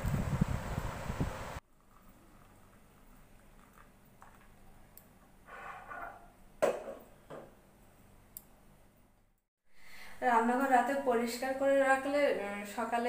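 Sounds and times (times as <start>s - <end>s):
milk pouring into a mug: 1.7s - 4.6s.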